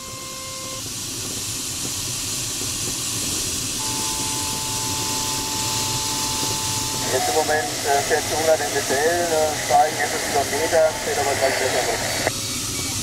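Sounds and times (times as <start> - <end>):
airflow hissing around glider canopy: 0.0 - 13.0
steady tone: 3.8 - 12.3.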